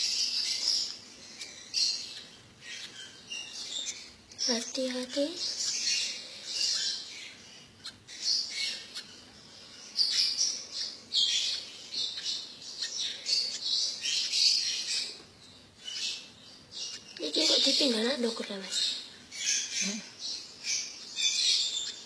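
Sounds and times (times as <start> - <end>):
lovebirds chirping and squawking: 0.0 - 22.0.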